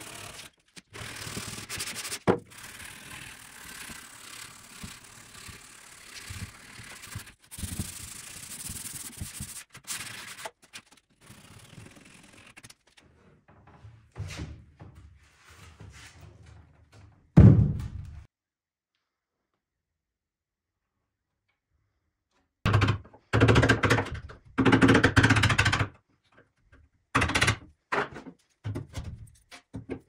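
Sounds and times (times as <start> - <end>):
sandpaper rubbing wood: 1.1 - 2.3, 3.8 - 10.6.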